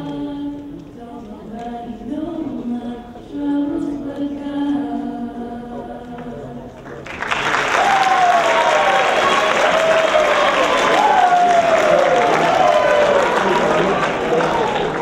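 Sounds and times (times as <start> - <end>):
voices singing held notes: 0.0 - 6.8
applause: 6.8 - 15.0.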